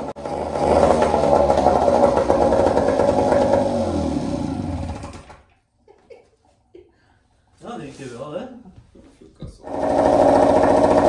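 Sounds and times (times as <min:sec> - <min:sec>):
outboard motor running hard: 0:00.0 - 0:05.2, 0:09.7 - 0:11.0.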